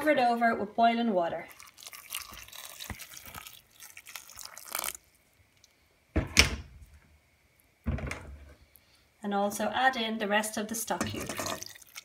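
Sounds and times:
water pouring into pot: 1.4s - 5.2s, 11.0s - 12.0s.

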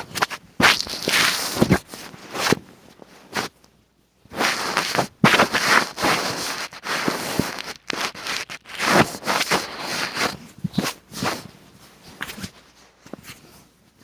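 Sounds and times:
phone handling rustling and scraping: 6.1s - 10.4s.

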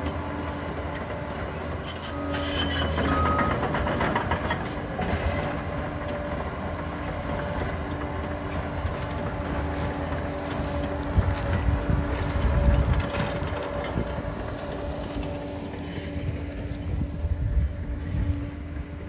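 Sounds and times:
diesel engine running: 0.0s - 19.0s
tracks clattering and scraping: 0.0s - 19.0s.

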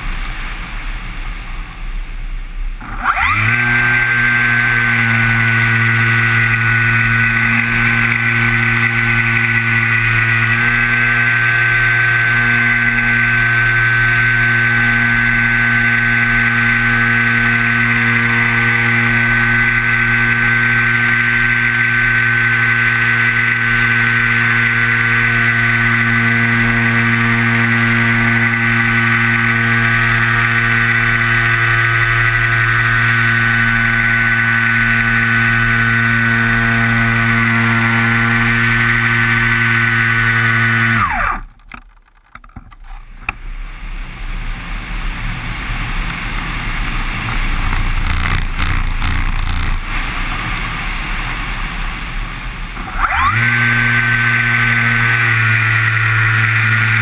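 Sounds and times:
model plane motor and propeller: 2.5s - 57.0s
wind rushing over microphone: 43.4s - 53.0s.

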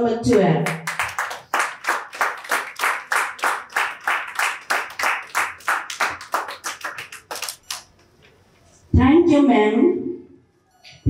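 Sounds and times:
audience clapping in rhythm: 0.3s - 8.0s.

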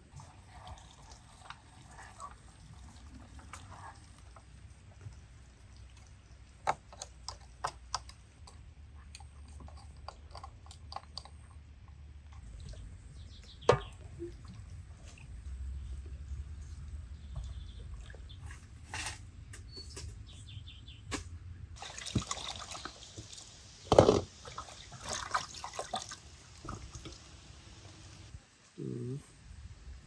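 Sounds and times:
water pouring: 0.0s - 7.5s, 21.8s - 28.3s.

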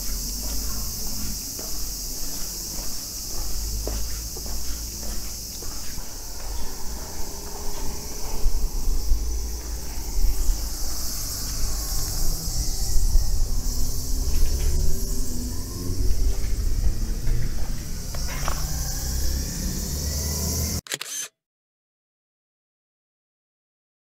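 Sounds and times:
high-pitched insect chorus: 0.0s - 20.8s
uneven low rumble: 6.0s - 15.0s.

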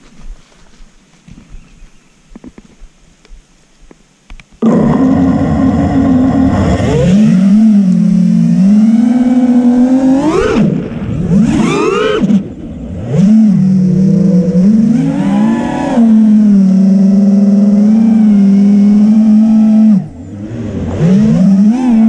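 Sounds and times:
quadcopter motors whining: 5.0s - 22.0s.

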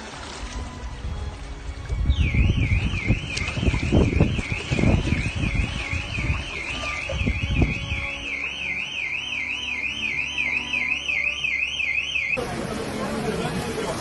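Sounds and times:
water splashing and sloshing: 0.0s - 14.0s
electronic alarm warbling: 2.1s - 12.4s.

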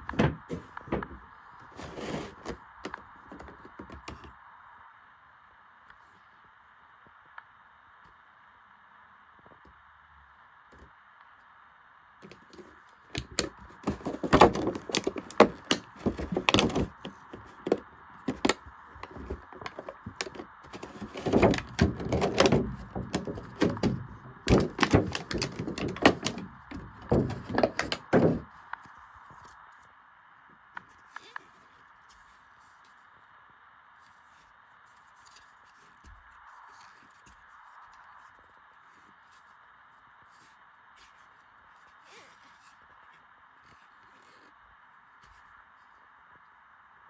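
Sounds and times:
faint steady hiss: 0.0s - 47.0s
plastic packaging tray crackling: 12.2s - 28.4s.

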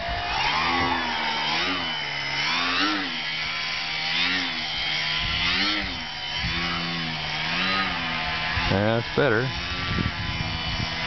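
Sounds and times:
electric model plane motor whining: 0.0s - 11.0s.

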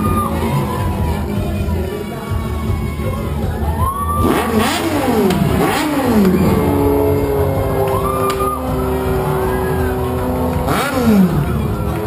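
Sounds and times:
music playing: 0.0s - 12.0s
motorcycle engine revving: 4.1s - 12.0s.

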